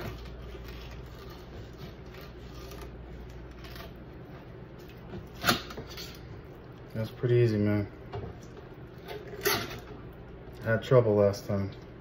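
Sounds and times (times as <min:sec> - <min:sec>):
knife scraping fish skin: 0:00.0 - 0:04.2.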